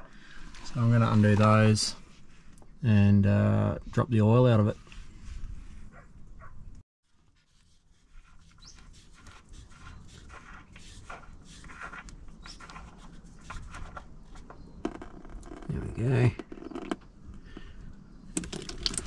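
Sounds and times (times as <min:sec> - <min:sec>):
drain plug clicking and scraping: 0:18.3 - 0:19.0.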